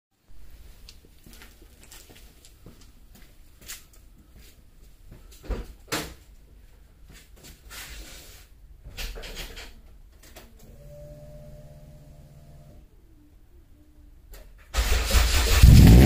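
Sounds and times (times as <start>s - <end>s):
electric hum: 10.6s - 12.9s.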